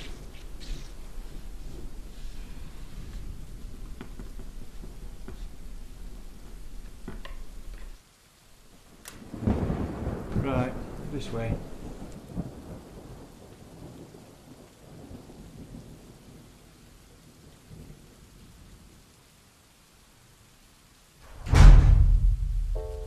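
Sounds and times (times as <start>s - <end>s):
low rumbling thunder: 0.0s - 7.9s, 8.6s - 16.6s, 21.2s - 23.0s
loud thunder clap: 8.8s - 14.1s, 21.2s - 23.0s.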